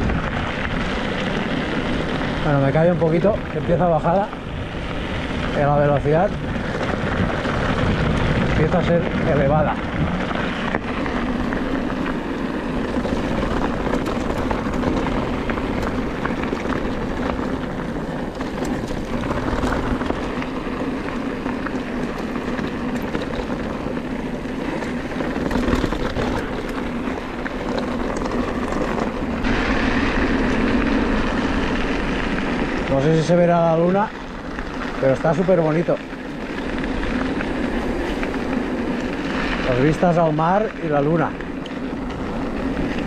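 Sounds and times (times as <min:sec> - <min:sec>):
wind on microphone: 0:00.0 - 0:33.3
bike tyres rolling over stony ground: 0:00.0 - 0:43.0
stones and bike rattling: 0:00.0 - 0:43.0.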